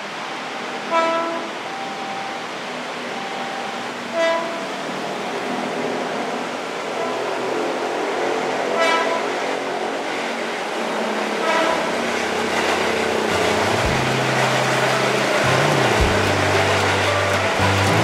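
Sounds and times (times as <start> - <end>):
electric train passing: 0.0 - 18.0
train horn toots: 0.8 - 1.6, 4.1 - 4.8, 8.7 - 9.6, 11.3 - 18.0.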